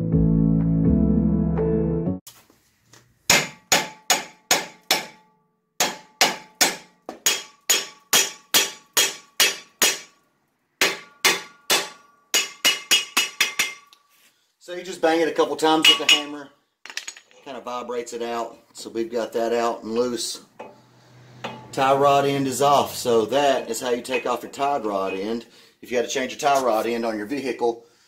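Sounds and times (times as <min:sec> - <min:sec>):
hammer ringing on metal: 0:03.3 - 0:10.2, 0:10.8 - 0:13.9, 0:15.8 - 0:16.4, 0:21.4 - 0:21.7.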